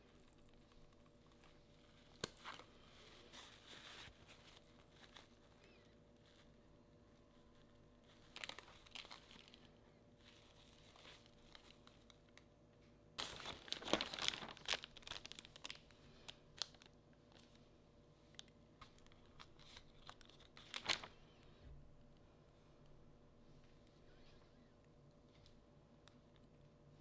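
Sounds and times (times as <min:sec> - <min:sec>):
plastic packaging crinkling: 0:08.1 - 0:12.2, 0:13.2 - 0:17.6, 0:18.4 - 0:21.1
plastic being torn open: 0:13.2 - 0:15.9.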